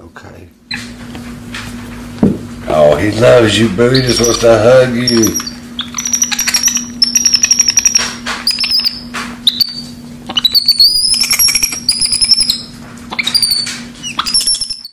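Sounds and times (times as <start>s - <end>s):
monkey trilling squeaks: 3.8s - 14.9s.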